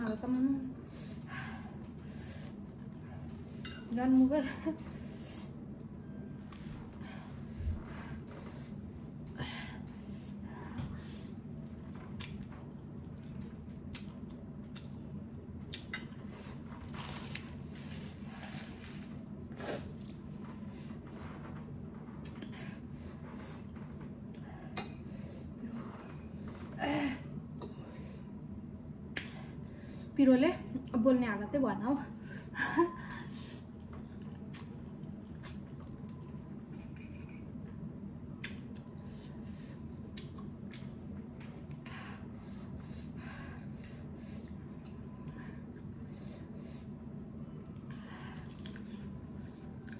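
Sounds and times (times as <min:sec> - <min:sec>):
steady low hum: 0:00.0 - 0:49.9
wet chewing: 0:34.2 - 0:36.8, 0:48.4 - 0:49.9.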